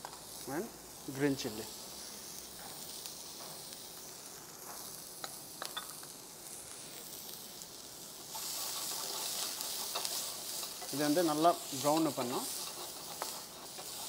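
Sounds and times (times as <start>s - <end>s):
vegetables sizzling in hot oil: 0.0s - 14.0s
spatula stirring in pan: 7.0s - 14.0s.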